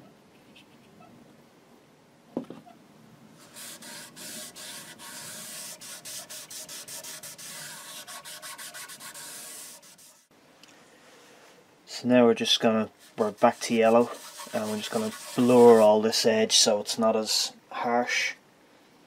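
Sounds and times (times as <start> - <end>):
cloth rubbing on wood: 3.4 - 10.3, 13.0 - 16.0.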